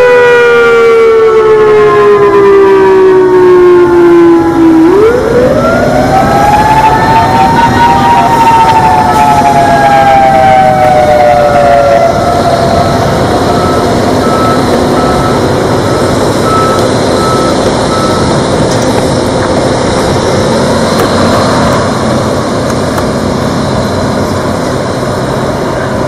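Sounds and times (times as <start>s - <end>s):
reversing beeper: 0.0s - 19.3s
electronic warning siren tone: 0.0s - 25.0s
road traffic noise: 0.0s - 26.0s.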